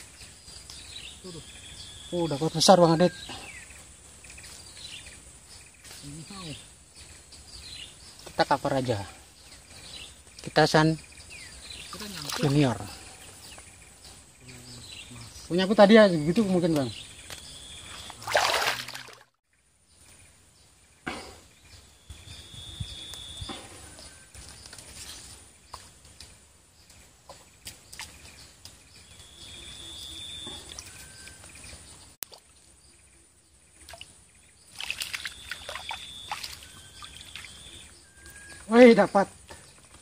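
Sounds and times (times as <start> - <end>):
small water sloshes: 11.9 - 12.9, 17.9 - 19.4, 33.8 - 37.7.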